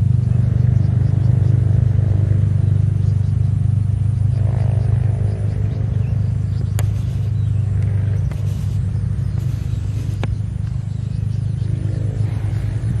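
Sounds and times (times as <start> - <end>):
faint pitched hum: 0.0 - 13.0
low rumble: 0.0 - 13.0.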